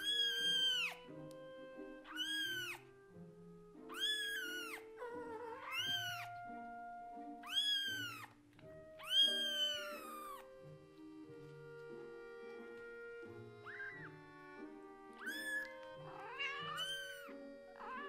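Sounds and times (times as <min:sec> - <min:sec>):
kitten meowing loudly: 0:00.0 - 0:01.0, 0:02.0 - 0:02.8, 0:03.9 - 0:06.5, 0:07.3 - 0:08.3, 0:09.0 - 0:10.5, 0:13.6 - 0:14.1, 0:15.2 - 0:18.0.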